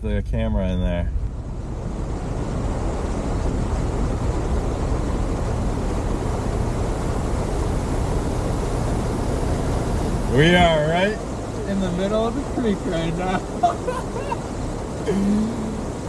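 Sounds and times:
pickup truck engine running: 0.0s - 16.0s
creek water rushing over rocks: 4.8s - 16.0s.

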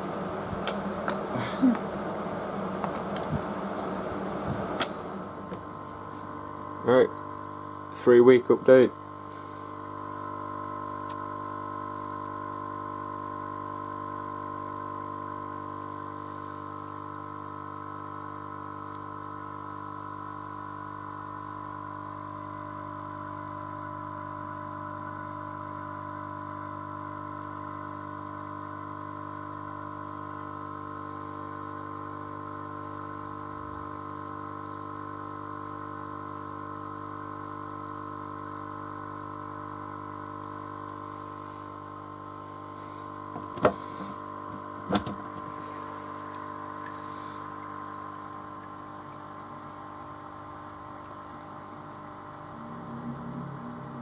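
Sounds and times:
small pump humming: 0.0s - 54.0s
watery hiss: 45.4s - 54.0s.

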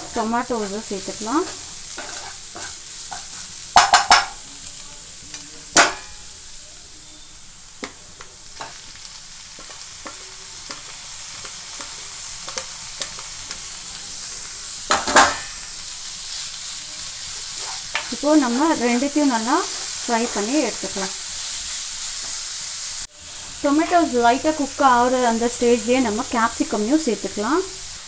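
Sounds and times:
onions sizzling in oil: 0.0s - 28.0s
spatula knocking and scraping pan: 1.4s - 4.4s.

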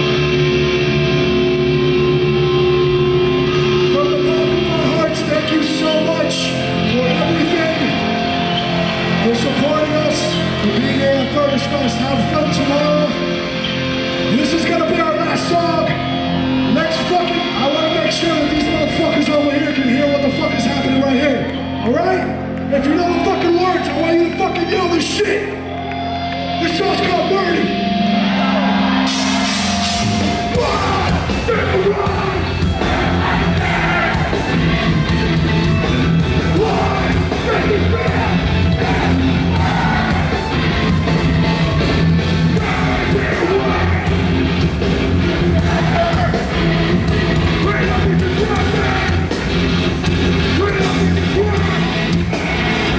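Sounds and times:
metalcore band playing live: 0.0s - 21.7s, 22.3s - 52.9s
distorted guitar chords: 0.0s - 23.2s, 23.8s - 52.9s
cymbal crashes: 29.0s - 30.6s
voices singing and shouting: 30.3s - 52.9s
person singing over band: 36.4s - 40.3s, 42.6s - 44.4s.

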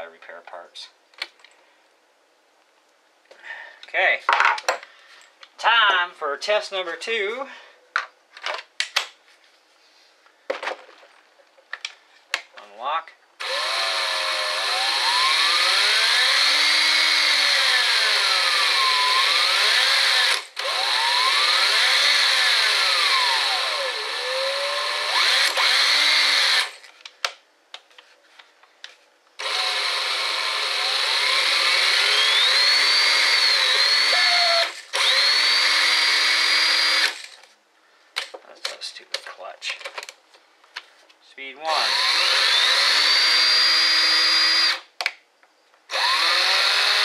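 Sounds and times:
cordless drill motor whining: 13.4s - 26.8s, 29.4s - 37.5s, 41.7s - 44.9s, 45.9s - 47.0s.

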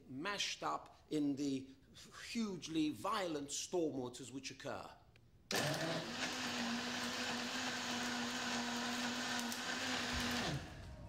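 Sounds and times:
blender motor whirring: 5.5s - 11.0s.

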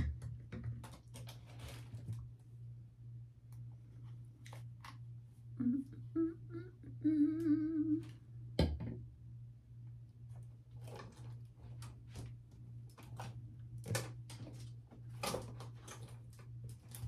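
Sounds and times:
steady low hum: 0.0s - 17.0s
person humming: 5.6s - 8.2s.

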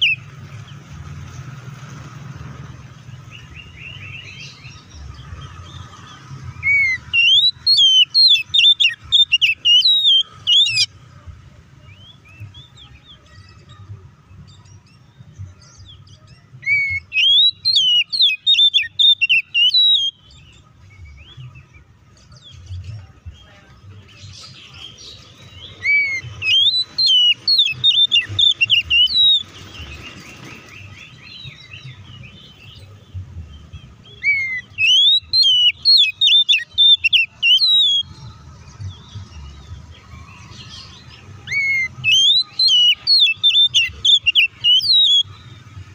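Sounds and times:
bird singing whistled notes: 0.0s - 0.7s, 3.0s - 11.0s, 14.3s - 45.9s.

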